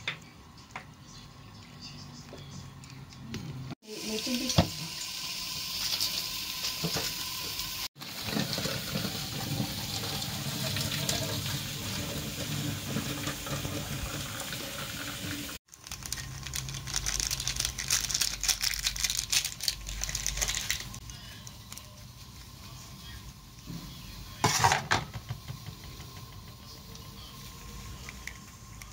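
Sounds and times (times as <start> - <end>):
hot water splashing into sink: 3.8 - 15.6, 24.7 - 26.6.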